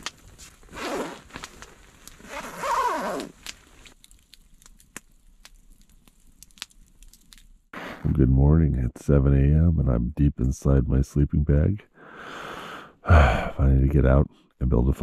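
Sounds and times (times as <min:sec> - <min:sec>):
sleeping bag rustling: 0:00.0 - 0:04.0
campfire crackling: 0:00.0 - 0:07.8
fire sharp pops: 0:00.0 - 0:08.2
zipper rasping: 0:00.7 - 0:01.6, 0:02.2 - 0:03.4.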